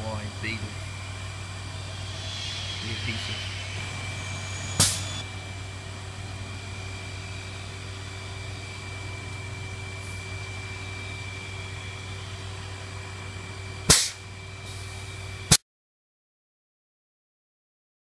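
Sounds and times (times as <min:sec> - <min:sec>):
faint high whine: 0:00.0 - 0:15.5
workshop machine hum: 0:00.0 - 0:15.6
loud sharp click: 0:04.8 - 0:05.2, 0:13.9 - 0:14.2.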